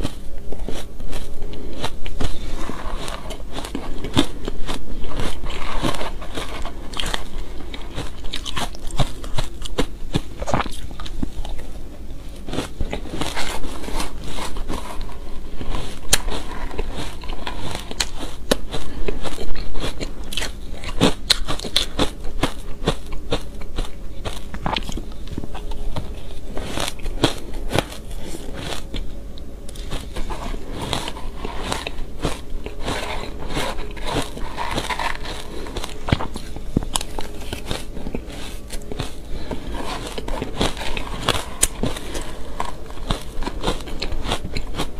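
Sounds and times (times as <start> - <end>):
chewing crunchy shaved ice: 0.0 - 44.9.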